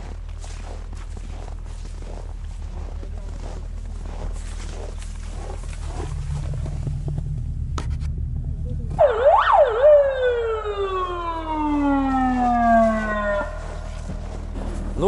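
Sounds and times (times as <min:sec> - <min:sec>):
siren wailing: 0:08.4 - 0:14.6.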